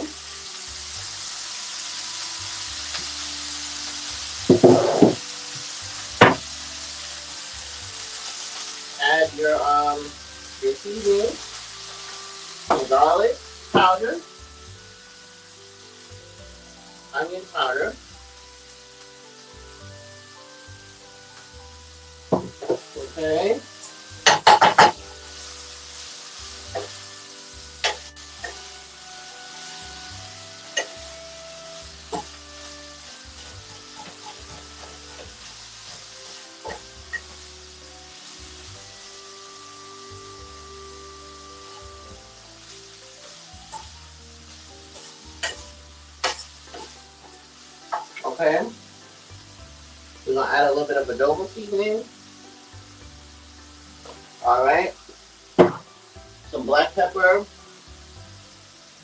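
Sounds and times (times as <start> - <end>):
vegetables sizzling in a frying pan: 0.0 - 59.0
sharp knock: 4.5 - 5.2, 6.2 - 6.4
metal utensil clanking on pan: 23.8 - 25.0, 27.8 - 28.6, 33.7 - 35.3, 44.9 - 46.9.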